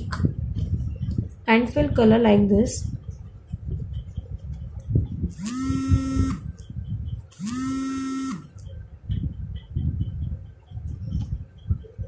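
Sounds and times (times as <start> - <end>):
small electric motor buzzing: 5.3 - 6.6, 7.3 - 8.6.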